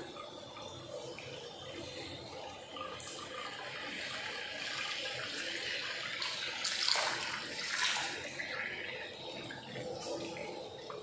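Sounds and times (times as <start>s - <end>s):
water running into bathtub: 3.4s - 11.0s.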